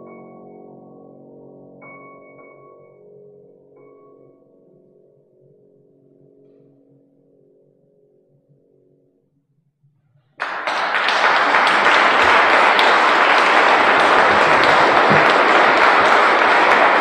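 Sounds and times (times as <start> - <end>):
piano notes: 0.0 - 9.2, 10.4 - 17.0
audience applause: 10.4 - 17.0.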